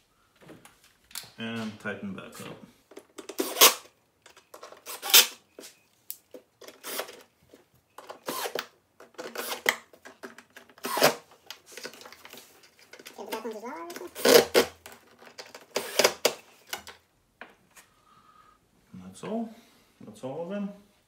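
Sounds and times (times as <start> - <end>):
cordless screwdriver bursts: 8.2 - 8.7, 9.3 - 9.7.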